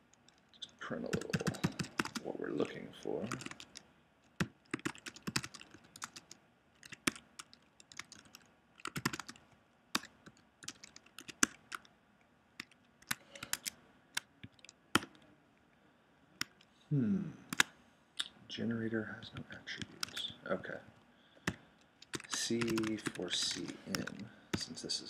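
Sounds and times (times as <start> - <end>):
computer keyboard typing: 0.3 - 11.9, 12.6 - 15.2, 19.8 - 20.3, 21.4 - 24.8.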